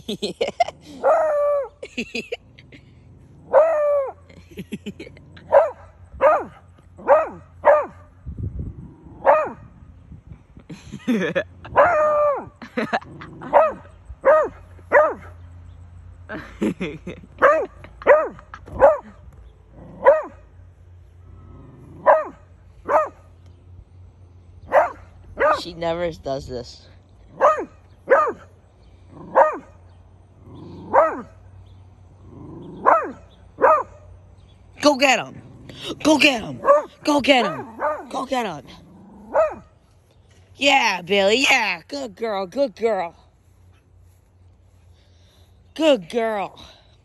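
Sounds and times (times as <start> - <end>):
dog barking: 5.5 - 8.1, 9.2 - 9.6, 13.5 - 15.4, 17.4 - 19.1, 20.0 - 20.4, 22.0 - 23.2, 24.7 - 25.6, 27.3 - 28.5, 29.3 - 29.7, 30.9 - 31.3, 32.8 - 34.0, 36.6 - 38.1, 39.3 - 39.6.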